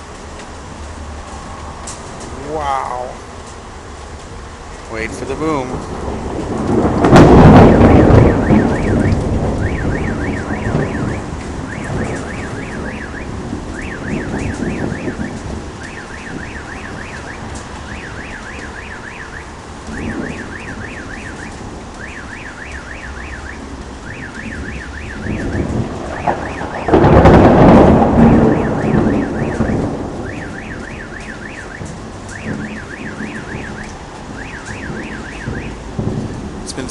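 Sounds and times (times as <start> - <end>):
steady rain: 0.0 - 36.9
thunder rumbling: 0.0 - 36.9
loud close thunderclap: 5.0 - 36.9
car alarm warbling: 7.1 - 36.9.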